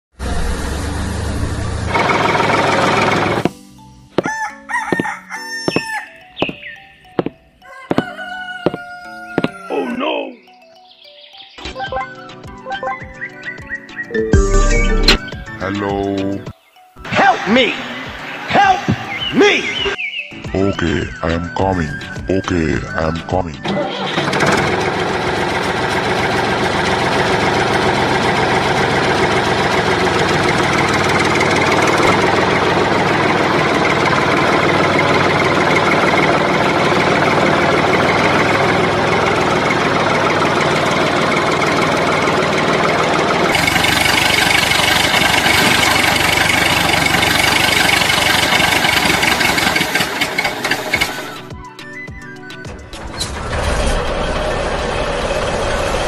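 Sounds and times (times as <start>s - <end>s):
tractor engine idling: 1.2s - 4.3s, 23.8s - 51.5s, 52.8s - 56.0s.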